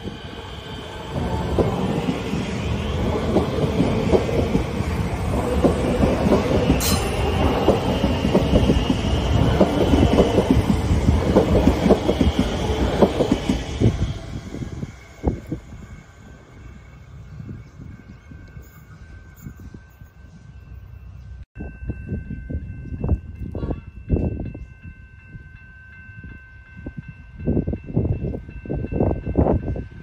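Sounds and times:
train wheels clattering: 1.1 - 14.0.

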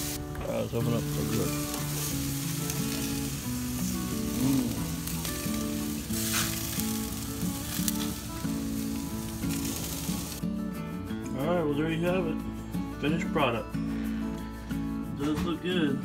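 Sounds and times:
meat sizzling on grill: 0.0 - 10.4.

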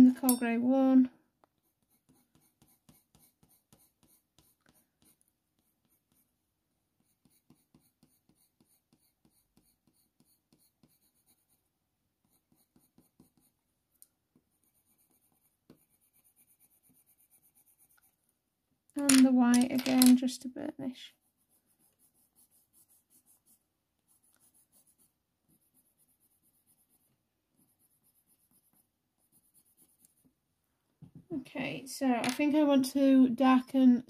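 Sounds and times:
pencil scratching on paper: 1.5 - 6.4, 7.0 - 13.6, 14.3 - 18.2, 21.0 - 30.4.

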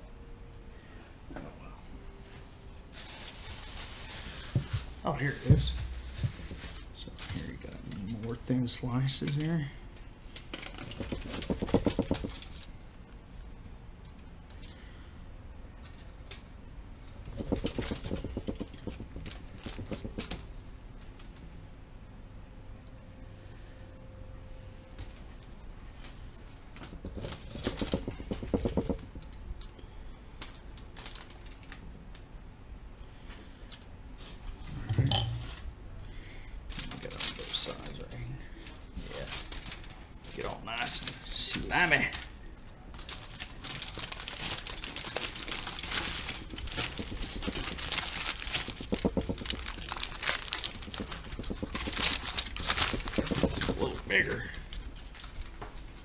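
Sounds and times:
aluminium foil crinkling: 2.9 - 13.1, 15.8 - 21.4, 25.0 - 29.4, 30.4 - 32.2, 36.7 - 56.0
rapid crackly clicks: 10.4 - 12.7, 17.2 - 20.4, 26.8 - 29.7, 43.0 - 56.0.

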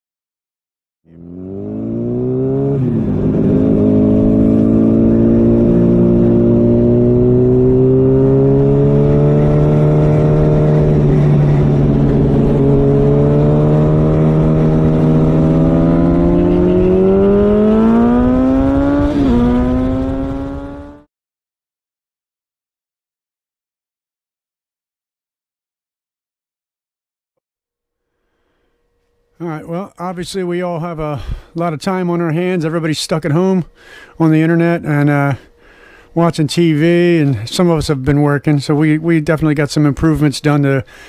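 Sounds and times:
motorcycle engine accelerating: 1.1 - 21.1.

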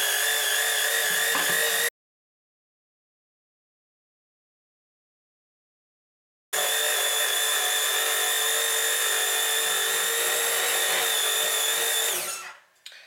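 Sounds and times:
electric hand mixer whine: 0.0 - 1.9, 6.6 - 12.6.

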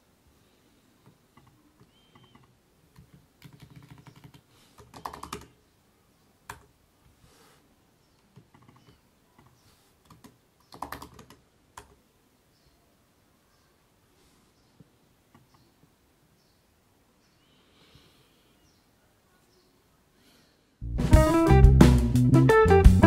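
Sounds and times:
computer keyboard typing: 1.4 - 5.6, 6.5 - 6.7, 8.3 - 12.0.

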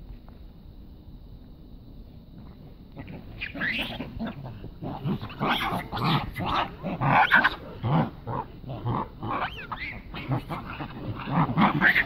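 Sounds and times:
animals yelping: 2.9 - 12.0.

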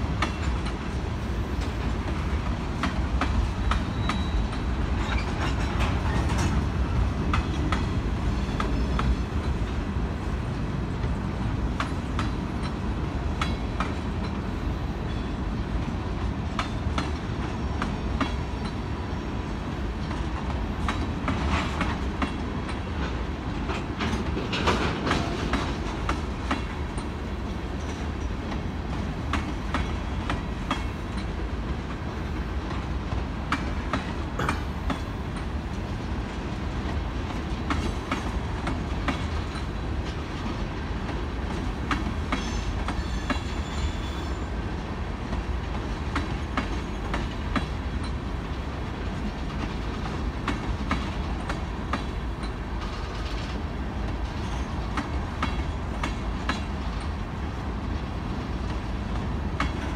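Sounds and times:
steel wheels rumbling on rail: 0.0 - 59.9
wheels clanking over rail joints: 1.5 - 9.9, 20.0 - 31.4
faint high squeal: 3.6 - 5.4, 42.4 - 44.5.

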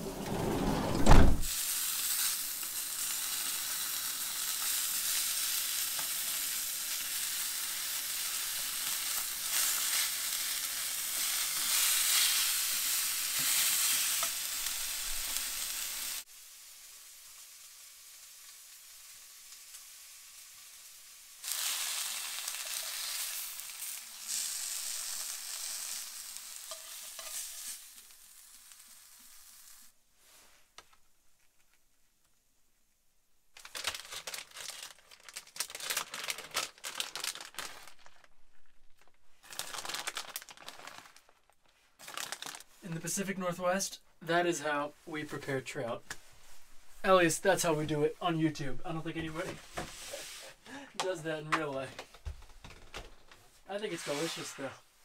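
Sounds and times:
fish sizzling in a pan: 1.5 - 30.4.

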